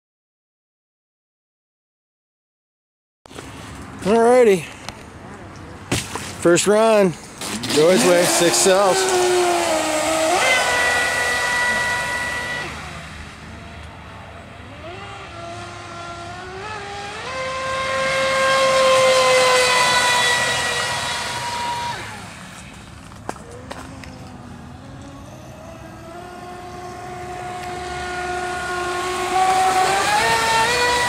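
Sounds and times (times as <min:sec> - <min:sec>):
electric motor whine: 0:07.5 - 0:31.0.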